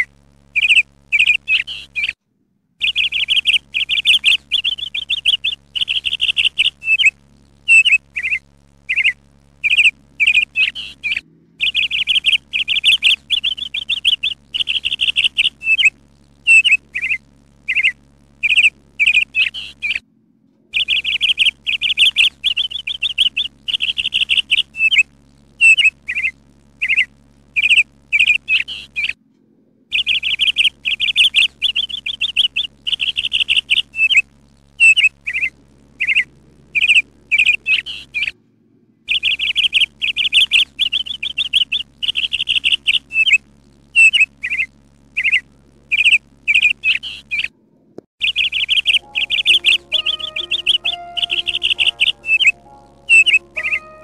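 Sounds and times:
songbird trilling: 0.6s - 2.2s, 2.8s - 15.9s, 16.5s - 20.0s, 20.8s - 29.2s, 29.9s - 34.2s, 34.8s - 38.4s, 39.1s - 43.4s, 44.0s - 47.5s, 48.2s - 54.0s
songbird short chirps: 48.2s - 54.0s.

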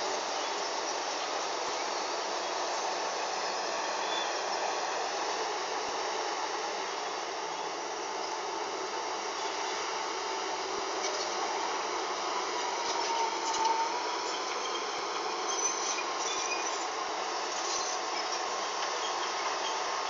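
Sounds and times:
faint mechanical whine: 0.0s - 20.0s
machinery drone: 0.0s - 20.0s.

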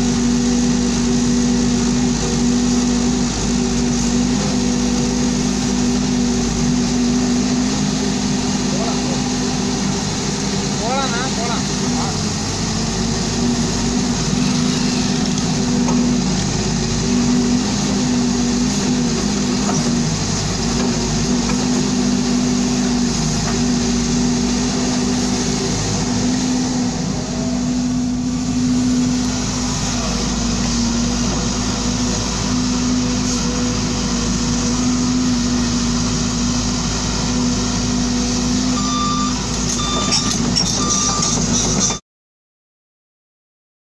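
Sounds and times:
excavator diesel engine running: 0.0s - 42.0s
short high beeps: 38.7s - 42.0s.

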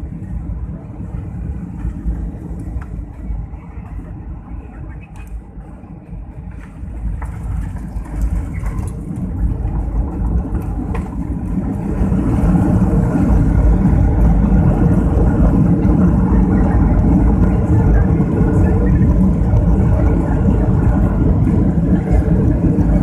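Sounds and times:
jet engines and runway rumble: 0.0s - 23.0s.

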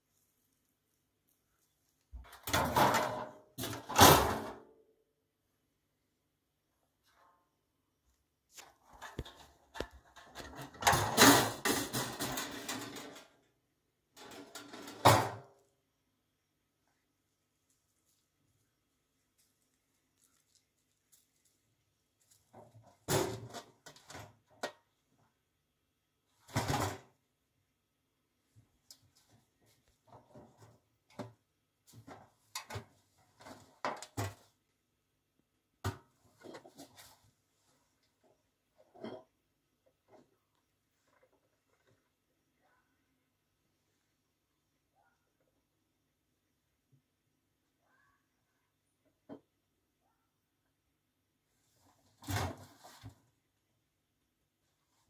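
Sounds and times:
metal dustbin rattling and clanking: 2.4s - 4.6s, 10.2s - 13.4s, 14.2s - 15.5s
knocks and scrapes on metal bin: 9.0s - 13.3s, 14.2s - 15.5s.

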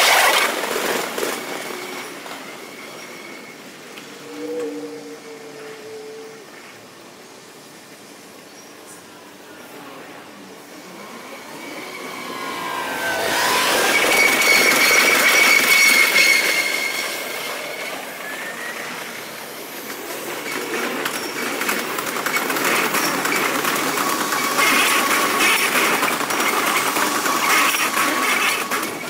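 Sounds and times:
train wheels squealing: 0.1s - 6.8s, 10.7s - 29.0s
train wheels clattering over rail joints: 11.9s - 29.0s.

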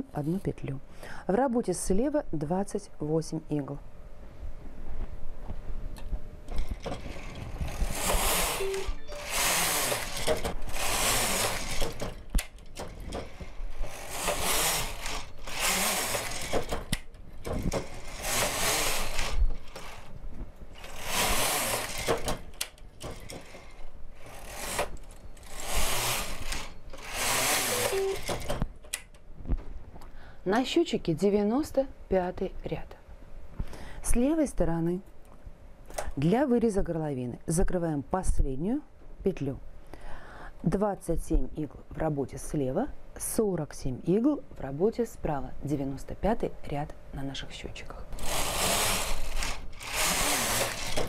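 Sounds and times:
knitting machine carriage rattling: 6.5s - 20.1s, 20.8s - 28.6s, 48.2s - 51.0s.

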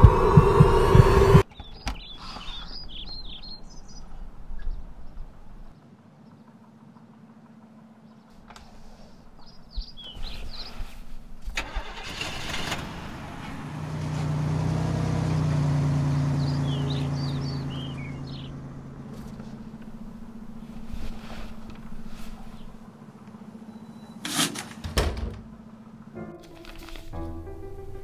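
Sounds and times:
car driving past: 0.0s - 1.4s, 11.6s - 23.8s
small birds chirping: 0.9s - 7.2s, 8.0s - 11.6s, 14.0s - 24.2s.

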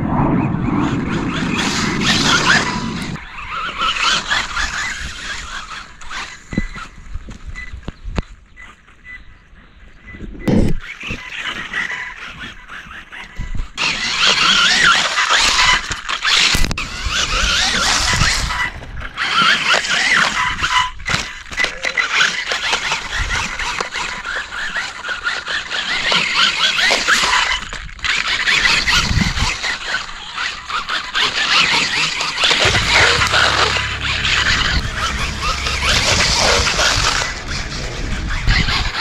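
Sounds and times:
electric motor and gears whining: 31.4s - 39.0s.

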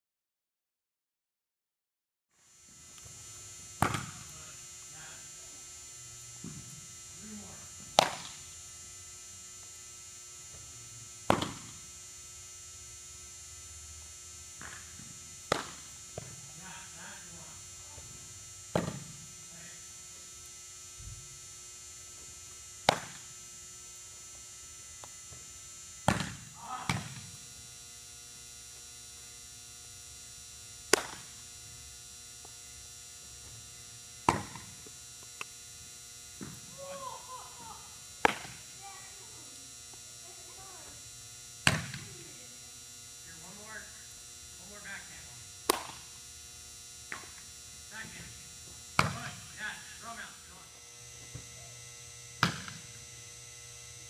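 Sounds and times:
electrical hum: 2.4s - 54.0s
baseball popping into glove: 3.8s - 4.2s, 7.9s - 8.4s, 15.5s - 16.4s, 22.9s - 23.2s, 30.9s - 31.3s, 38.2s - 38.6s, 45.7s - 46.0s
baseball smacking into a mitt: 3.8s - 4.2s, 7.9s - 8.4s, 11.3s - 11.8s, 14.6s - 14.9s, 15.5s - 16.4s, 18.8s - 19.2s, 22.9s - 23.3s, 26.1s - 27.3s, 30.9s - 31.4s, 34.3s - 34.8s, 38.2s - 38.7s, 41.7s - 42.1s, 45.6s - 46.1s, 49.0s - 49.2s, 52.4s - 52.9s.

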